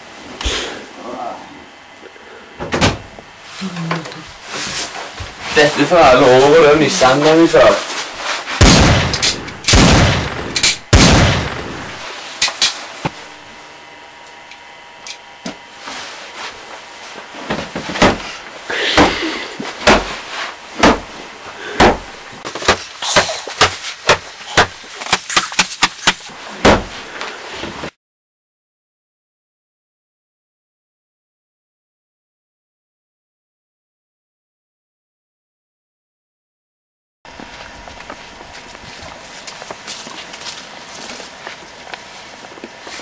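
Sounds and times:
pistol shots: 0:08.6 - 0:12.0.

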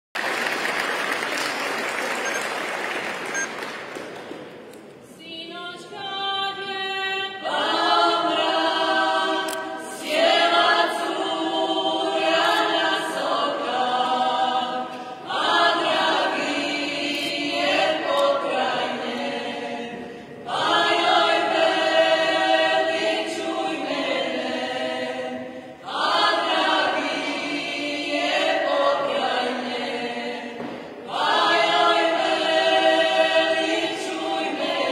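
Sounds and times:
applause: 0:00.1 - 0:04.5
group singing unaccompanied: 0:05.4 - 0:34.9.

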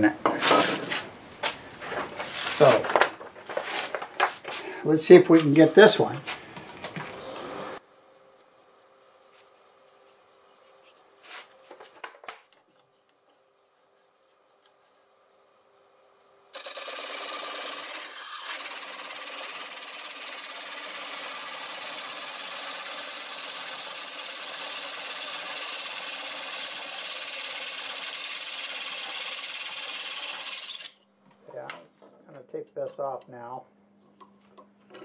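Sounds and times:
blade scraping spinning wood: 0:01.8 - 0:04.6, 0:16.6 - 0:31.0.

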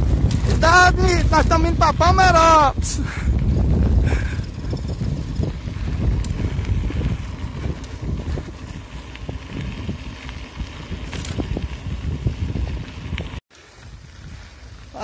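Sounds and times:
bike tyres rolling on dirt: 0:00.0 - 0:15.0
wind buffeting microphone: 0:00.0 - 0:15.0.

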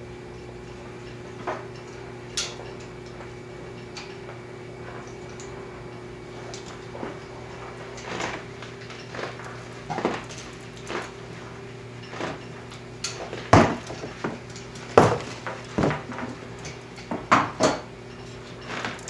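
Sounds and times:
steady low hum: 0:00.0 - 0:19.0
sharp knocks and cracks: 0:12.0 - 0:19.0.

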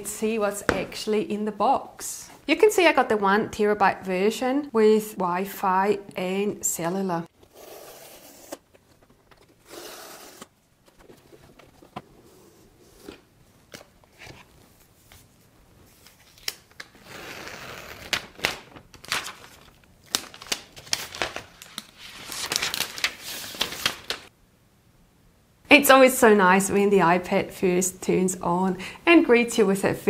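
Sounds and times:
paper wrap rustling: 0:12.9 - 0:24.3.

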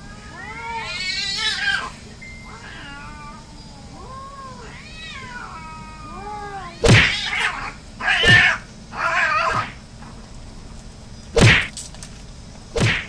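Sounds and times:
cats yowling: 0:00.0 - 0:09.8
cats fighting with harsh squalls: 0:06.8 - 0:09.8, 0:11.3 - 0:13.0.

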